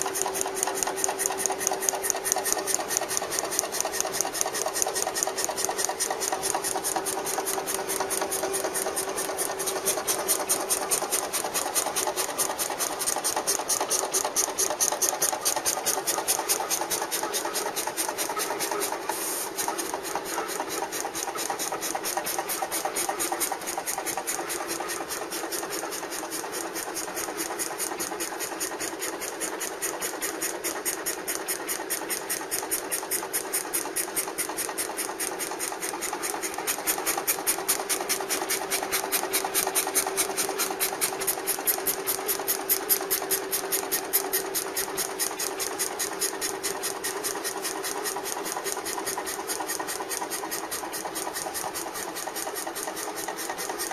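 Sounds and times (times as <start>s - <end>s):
fast even ticking: 0.0s - 17.2s
cutting plotter motor hum: 0.0s - 53.9s.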